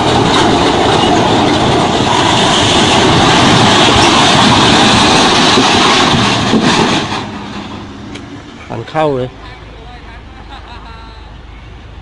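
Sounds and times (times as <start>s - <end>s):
concrete wall collapsing crash: 0.0s - 7.4s.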